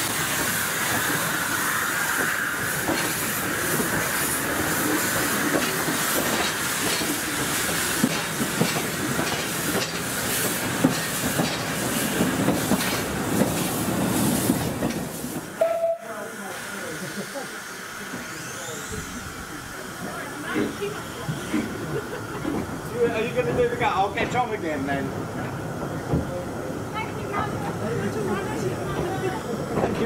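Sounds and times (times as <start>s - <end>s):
steam hissing: 0.0s - 30.0s
steam train rumbling: 0.0s - 30.0s
wheels clicking over rail joints: 5.5s - 13.6s.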